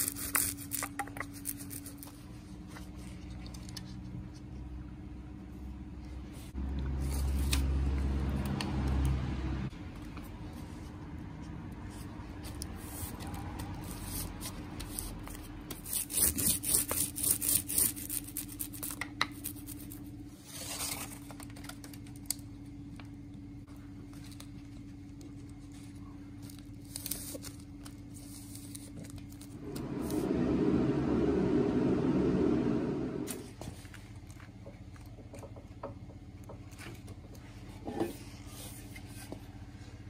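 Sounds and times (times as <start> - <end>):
low hum: 29.4 - 33.6
even rushing noise: 29.6 - 33.5.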